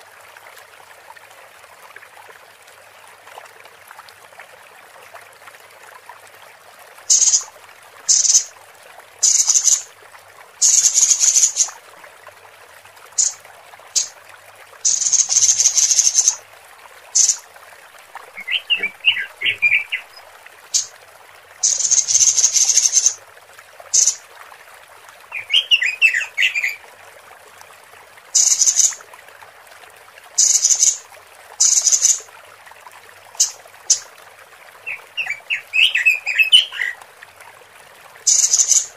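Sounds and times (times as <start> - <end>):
faint steady hiss: 0.0 - 38.9
bird harsh hissing calls: 7.1 - 7.5, 8.1 - 8.5, 9.2 - 9.8, 10.6 - 11.7, 13.2 - 13.4, 14.9 - 16.4, 17.2 - 17.4, 18.4 - 20.9, 21.6 - 23.2, 24.0 - 24.2, 28.4 - 29.0, 30.4 - 31.0, 31.6 - 32.2, 38.3 - 38.9
bird twittering: 7.1 - 7.5, 8.1 - 8.5, 9.2 - 9.8, 10.6 - 11.7, 14.9 - 16.4, 17.2 - 17.4, 18.4 - 20.9, 21.6 - 23.2, 24.0 - 24.2, 25.4 - 26.8, 28.4 - 29.0, 30.4 - 31.0, 34.9 - 36.9, 38.3 - 38.9.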